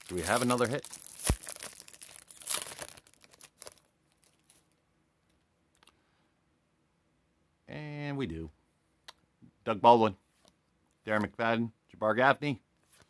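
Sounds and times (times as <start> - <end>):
foil wrapper tearing and crinkling: 0.0 - 4.7.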